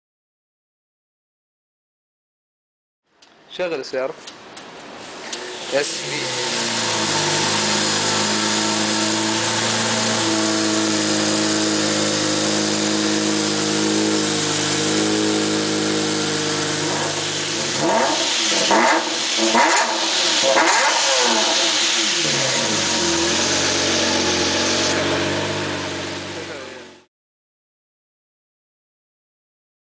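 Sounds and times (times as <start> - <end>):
car engine idling and revving: 5.3 - 27.1.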